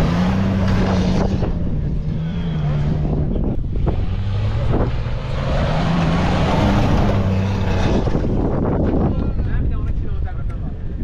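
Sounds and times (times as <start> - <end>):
car engine under load: 0.0 - 9.2
wind buffeting microphone: 0.8 - 11.0
tyres churning sand: 4.0 - 8.5.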